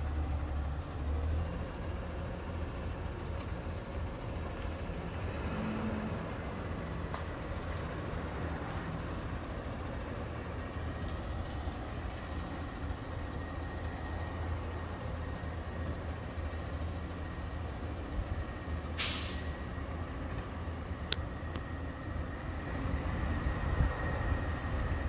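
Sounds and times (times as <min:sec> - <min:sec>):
truck engine rumbling: 0:00.0 - 0:25.0
air brakes hissing: 0:19.0 - 0:19.7.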